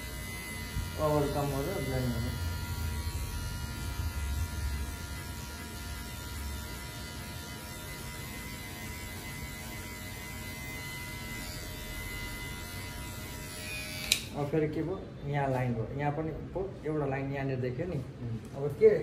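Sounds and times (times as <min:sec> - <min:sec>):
hair clipper humming: 0:00.0 - 0:14.4.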